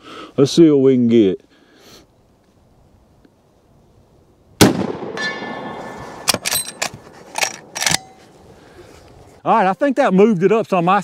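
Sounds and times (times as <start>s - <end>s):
rifle shot: 4.6s - 6.6s
metallic ring of steel target: 5.1s - 6.8s
rifle lever metal clacks: 6.3s - 8.2s.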